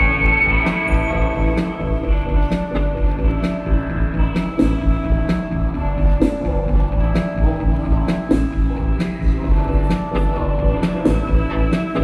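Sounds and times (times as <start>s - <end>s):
drum kit steady beat: 0.0s - 12.0s
electric guitar sustained notes: 0.0s - 12.0s
keyboard sustained notes: 0.0s - 12.0s.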